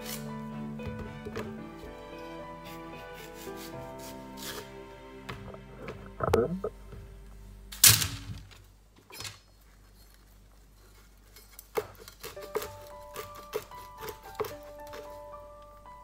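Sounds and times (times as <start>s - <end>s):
soft background music: 0.0s - 8.5s, 12.0s - 16.0s
knife chopping on plastic board: 11.7s - 15.1s.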